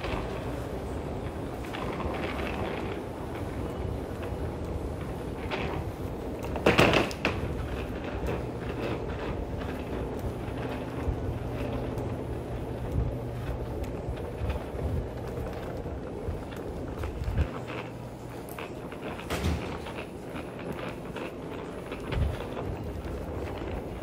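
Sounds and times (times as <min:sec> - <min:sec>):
steady low hum: 0:00.0 - 0:24.0
loud clatter: 0:18.6 - 0:21.3.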